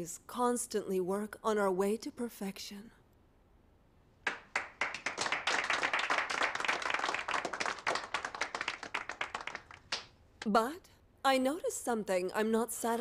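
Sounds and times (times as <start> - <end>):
people applauding: 4.2 - 10.1.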